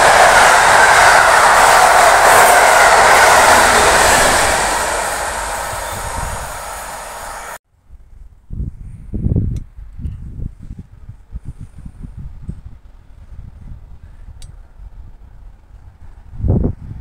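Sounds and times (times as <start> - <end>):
train wheels rushing on rail: 0.0 - 7.6.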